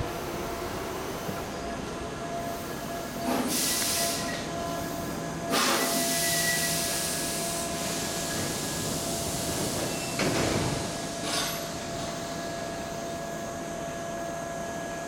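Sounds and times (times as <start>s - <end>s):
electric train stopping: 0.0s - 13.7s
air hissing from brakes: 2.4s - 12.3s.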